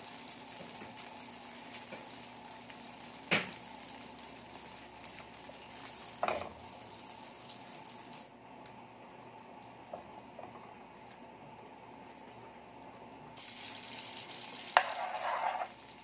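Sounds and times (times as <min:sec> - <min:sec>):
butter sizzling in a frying pan: 0:00.0 - 0:16.0.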